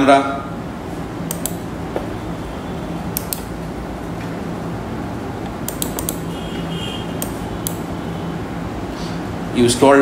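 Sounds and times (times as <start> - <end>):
computer mouse clicks: 1.3 - 1.6, 3.1 - 3.5, 5.4 - 6.3, 7.2 - 7.8.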